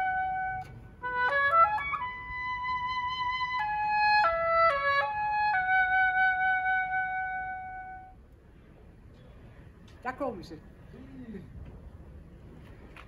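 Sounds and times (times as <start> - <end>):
solo oboe slow melody: 0.0 - 8.2.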